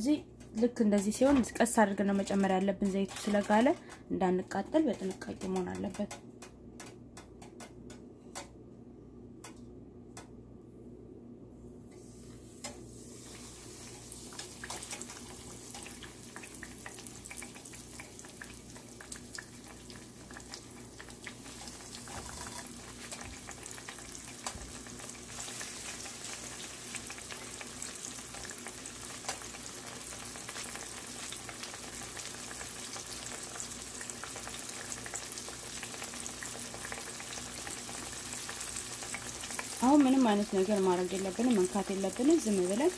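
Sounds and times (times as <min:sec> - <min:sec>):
fish sizzling in hot oil: 0:12.4 - 0:42.9.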